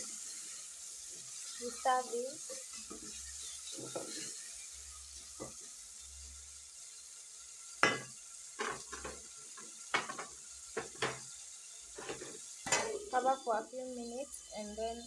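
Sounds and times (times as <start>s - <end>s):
vegetables sizzling in oil: 0.0s - 15.0s
spoon knocking on pot: 7.8s - 9.2s, 9.9s - 11.2s
wooden spoon scraping pot: 11.9s - 12.4s.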